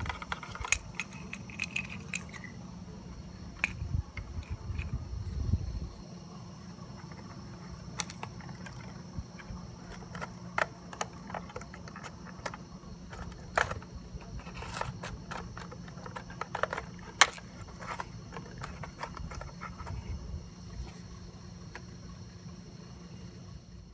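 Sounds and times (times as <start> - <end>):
steady low background rumble: 0.0 - 10.2.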